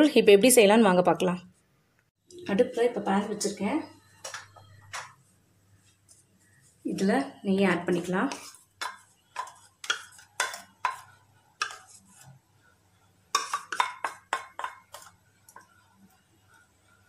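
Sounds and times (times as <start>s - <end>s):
spatula scraping frying pan: 8.3s - 12.4s, 13.3s - 17.0s.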